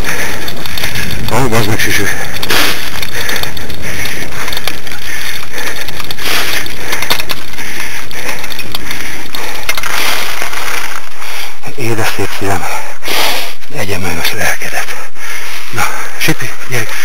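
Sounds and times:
rig crunching and rattling on dirt: 0:00.0 - 0:12.0.

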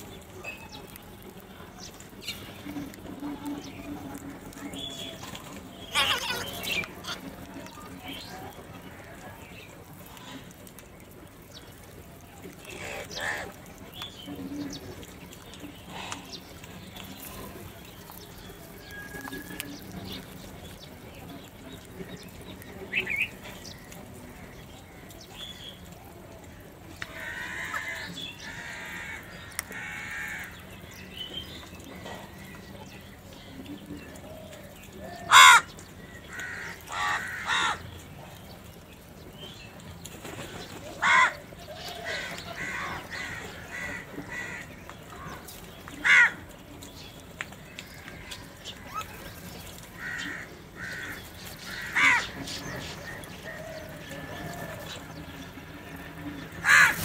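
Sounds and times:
crows cawing: 0:12.8 - 0:13.6, 0:27.1 - 0:30.6, 0:35.1 - 0:37.9, 0:41.0 - 0:45.4, 0:46.0 - 0:46.4, 0:50.0 - 0:52.4, 0:56.6 - 0:57.0.

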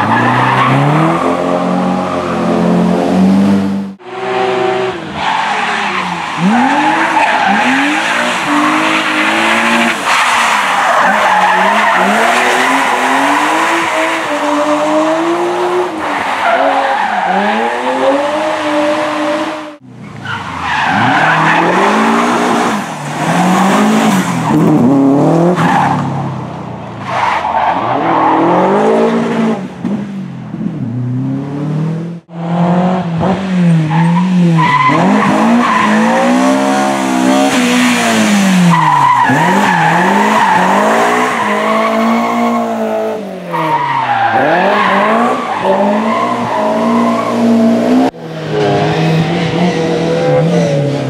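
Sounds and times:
rally car engines revving: 0:00.0 - 0:51.0.

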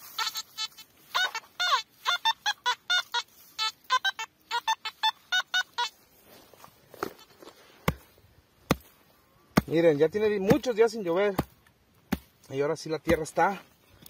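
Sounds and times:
metal detector beeps: 0:00.0 - 0:06.0
digging tool striking dry ground: 0:07.8 - 0:13.6.

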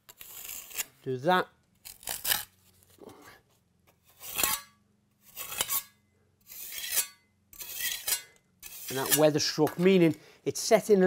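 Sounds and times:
trowel scraping mortar: 0:00.0 - 0:01.1, 0:01.8 - 0:03.3, 0:03.9 - 0:10.1.

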